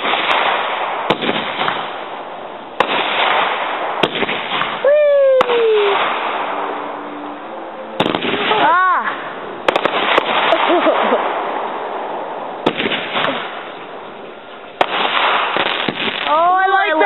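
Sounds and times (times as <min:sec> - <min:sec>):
firework bangs: 0:00.0 - 0:07.1, 0:07.9 - 0:17.0
fireworks crackling hiss: 0:00.0 - 0:07.1, 0:08.0 - 0:17.0
whistling firework falling pitch: 0:02.8 - 0:11.4.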